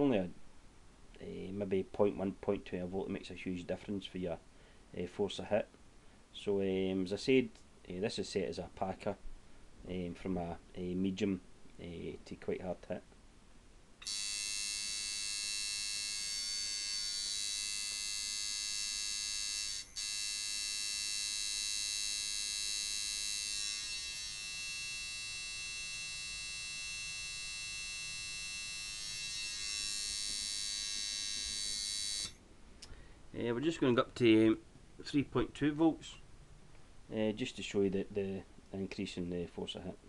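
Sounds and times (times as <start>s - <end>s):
tattoo machine buzzing: 14.0s - 32.4s.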